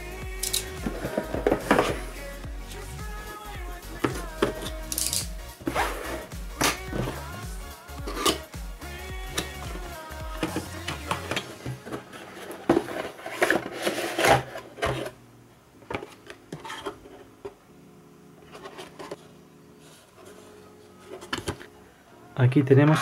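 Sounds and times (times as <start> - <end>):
cardboard rubbing and scraping: 5.6 - 7.3, 10.4 - 15.1.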